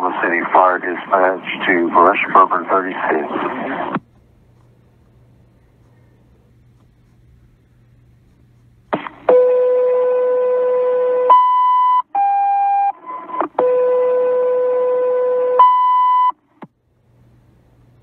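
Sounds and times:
radio alert tones: 0:00.0 - 0:04.0.

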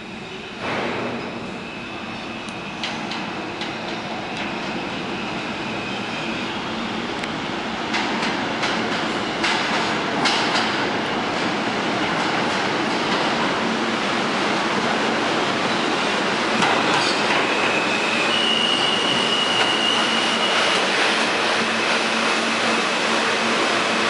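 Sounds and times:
train wheels rumbling on rail: 0:00.0 - 0:24.0
clacks over rail joints: 0:07.9 - 0:10.9
high metallic squeal: 0:17.1 - 0:20.9.

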